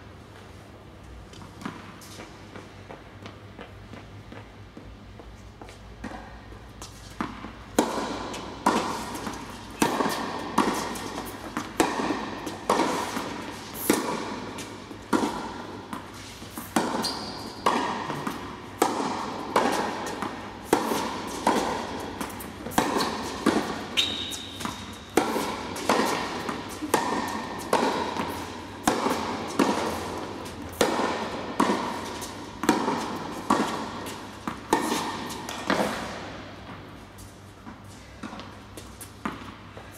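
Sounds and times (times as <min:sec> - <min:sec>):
tennis balls hit by racquets: 0:01.3 - 0:39.9
high squeaks: 0:23.9 - 0:24.7.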